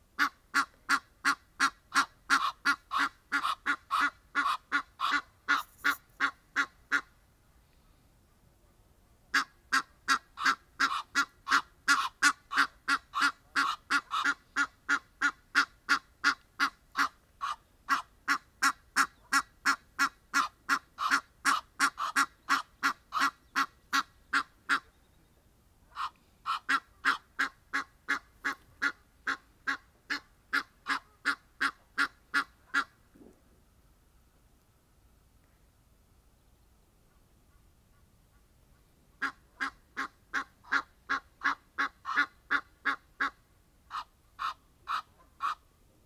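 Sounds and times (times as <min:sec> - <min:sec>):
goose honking: 0:00.2 - 0:07.1, 0:09.3 - 0:24.9, 0:25.9 - 0:32.9, 0:39.2 - 0:45.6.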